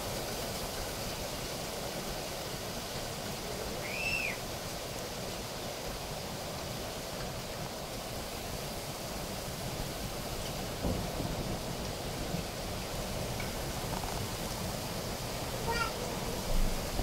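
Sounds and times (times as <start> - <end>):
heavy rain pouring: 0.0 - 17.0
short high whistle: 3.8 - 4.4.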